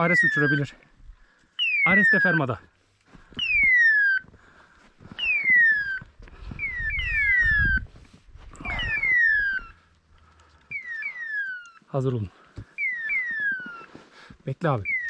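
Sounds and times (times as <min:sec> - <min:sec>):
footsteps on rocky ground: 0:02.4 - 0:08.8, 0:12.4 - 0:15.0
electronic beeper screech: 0:08.6 - 0:09.8.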